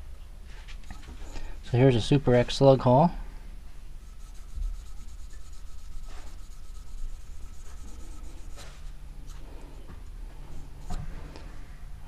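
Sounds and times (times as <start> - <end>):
cotton ball rubbing plastic: 4.0 - 9.0.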